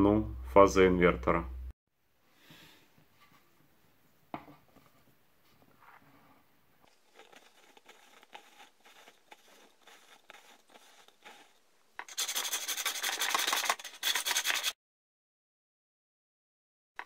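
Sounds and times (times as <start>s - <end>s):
marker scratching on pipe: 6.9s - 14.8s.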